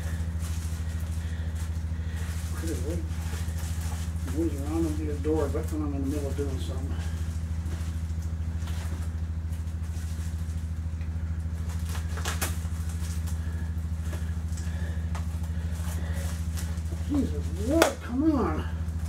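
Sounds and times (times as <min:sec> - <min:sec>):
bubble wrap and tape rustling: 0:00.0 - 0:19.0
low machine hum: 0:00.0 - 0:19.0.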